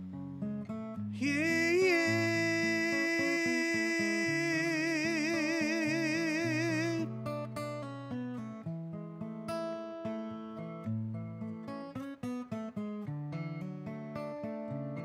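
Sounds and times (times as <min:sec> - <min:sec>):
acoustic guitar: 0:00.0 - 0:15.0
man singing with vibrato: 0:01.1 - 0:07.6.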